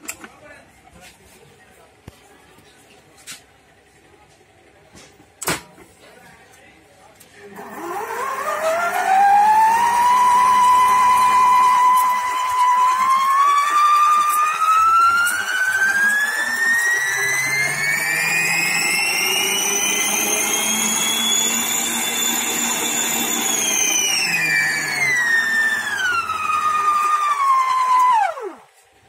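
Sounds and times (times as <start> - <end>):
stand mixer motor whining: 7.4 - 28.8.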